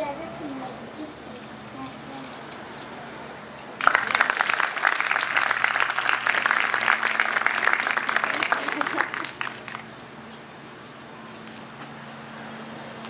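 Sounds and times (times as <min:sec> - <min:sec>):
audience applause: 0:03.8 - 0:09.9.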